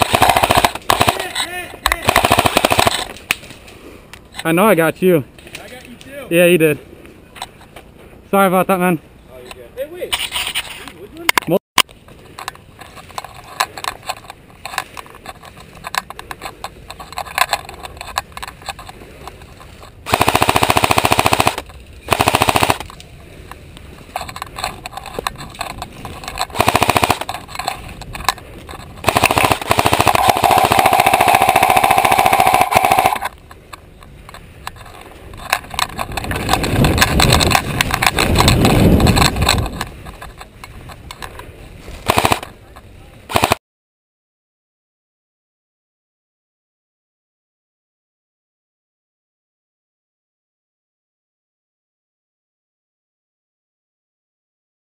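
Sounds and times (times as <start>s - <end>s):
airsoft rifle bursts: 0.0s - 3.2s, 20.0s - 22.9s, 26.5s - 27.3s, 29.0s - 33.3s, 42.0s - 42.5s, 43.3s - 43.6s.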